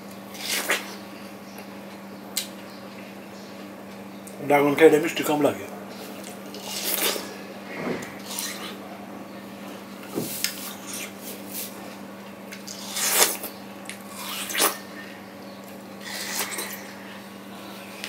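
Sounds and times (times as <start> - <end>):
wet eating and smacking: 12.5 - 14.8, 15.6 - 17.0.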